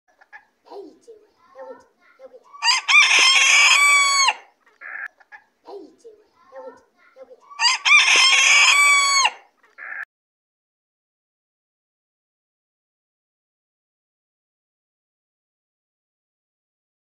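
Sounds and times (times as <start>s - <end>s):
rooster crowing: 2.6s - 4.5s, 7.5s - 10.0s.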